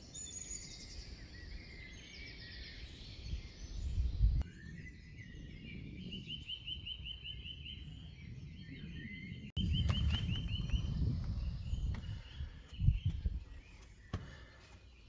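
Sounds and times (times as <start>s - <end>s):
songbird chirping: 0.0s - 15.0s
steady low rumble: 9.4s - 13.8s.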